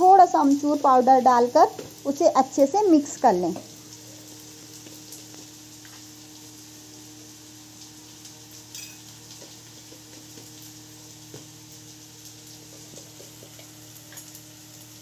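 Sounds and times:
food sizzling in hot oil: 0.0s - 15.0s
spoon clinking in steel bowl: 8.8s - 9.1s.

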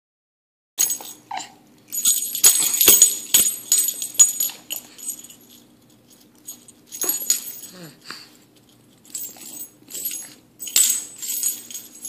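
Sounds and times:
jingle bells toy shaking: 1.9s - 7.9s.

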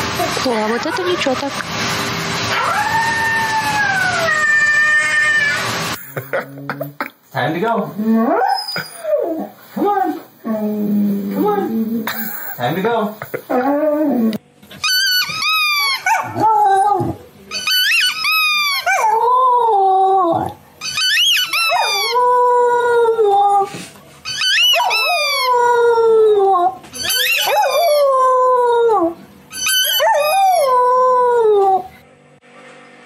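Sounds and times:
dog howling: 2.5s - 5.8s, 13.5s - 23.7s, 24.3s - 32.0s.

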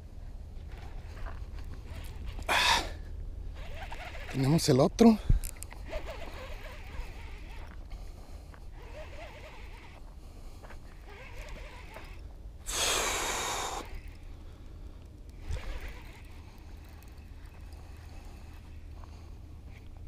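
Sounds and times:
fishing reel spool whirring: 3.5s - 4.9s, 5.5s - 19.9s.

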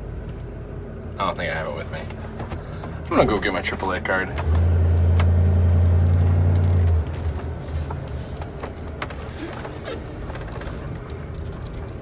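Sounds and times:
engine humming: 0.0s - 12.0s
rustling: 6.6s - 12.0s.

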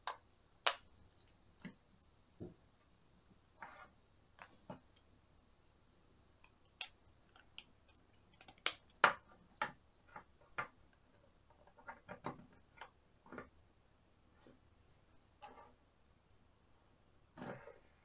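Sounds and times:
plastic puzzle pieces clicking: 6.5s - 10.7s.

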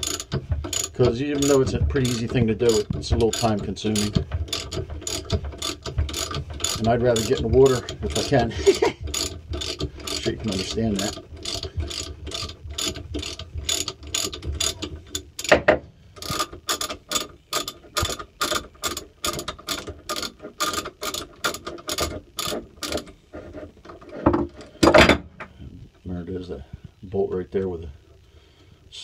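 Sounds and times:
socket ratchet clicking: 0.0s - 15.5s, 16.2s - 23.1s.

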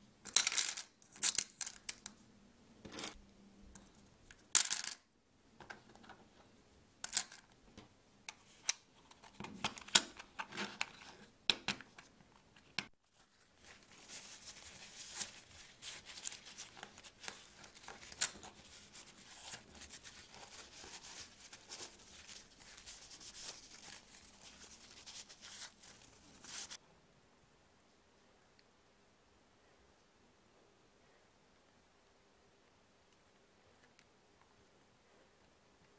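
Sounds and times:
coins clicking: 0.3s - 2.1s, 4.6s - 5.0s
paper tissue rustling: 13.0s - 26.8s.

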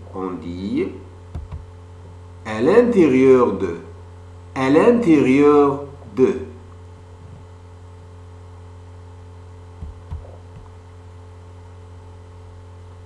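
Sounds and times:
low electrical hum: 0.0s - 13.0s
faint low thumps: 1.3s - 1.7s, 9.8s - 10.8s.

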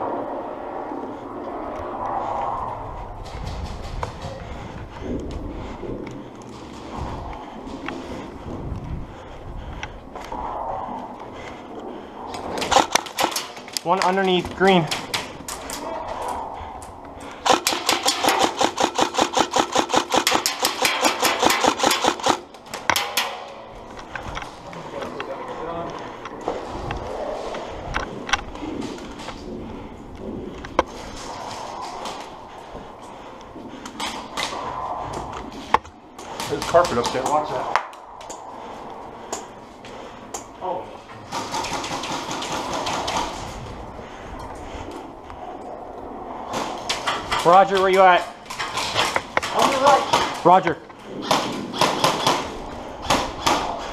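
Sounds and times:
airsoft rifle rapid shots: 12.7s - 13.5s, 17.4s - 23.3s, 41.3s - 43.4s.

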